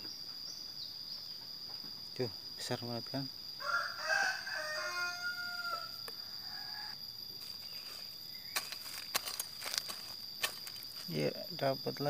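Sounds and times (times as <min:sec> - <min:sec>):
crickets trilling: 0:00.0 - 0:12.0
rooster crowing: 0:03.6 - 0:07.0.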